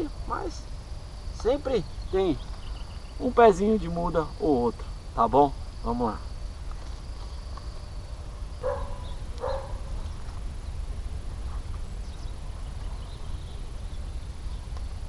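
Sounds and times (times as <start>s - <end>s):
steady low rumble: 0.0s - 15.0s
dog barking: 8.6s - 10.0s.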